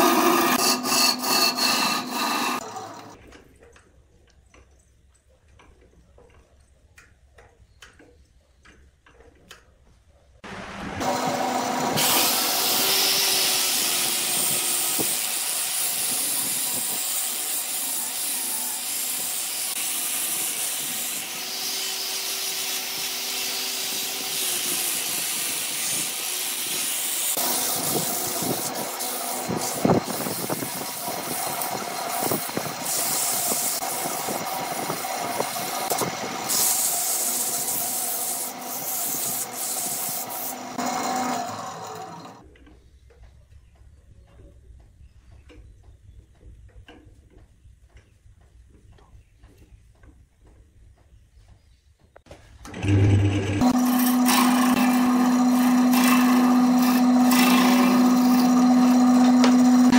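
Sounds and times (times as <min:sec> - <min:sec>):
small irregular clicks: 0:03.2 - 0:10.0
sanding hiss on spinning wood: 0:11.0 - 0:41.3, 0:53.6 - 0:59.9
lathe motor hum: 0:40.3 - 0:42.4, 0:52.7 - 0:59.9.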